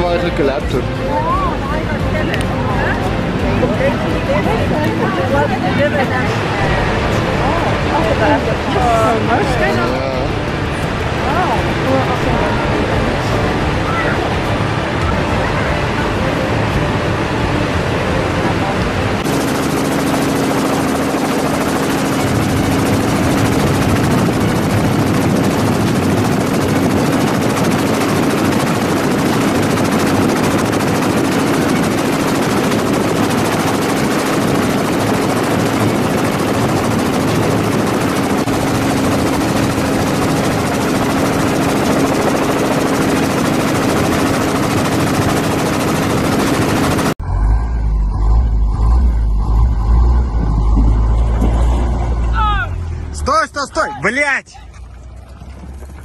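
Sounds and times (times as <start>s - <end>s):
helicopter engine and rotor roar: 0.0s - 47.2s
vehicle engine rumble: 33.4s - 53.8s, 54.5s - 56.0s.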